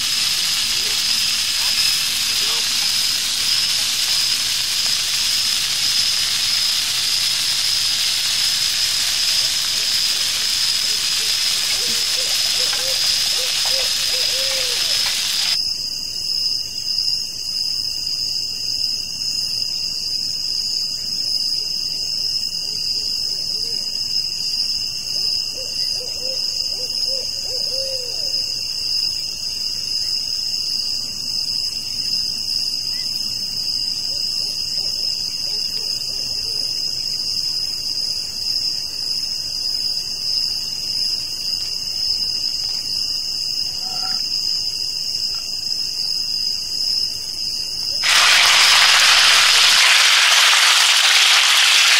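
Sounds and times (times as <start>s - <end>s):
sausages sizzling on grill pan: 0.0s - 15.6s, 48.0s - 51.9s
night insects chorus: 0.0s - 51.9s.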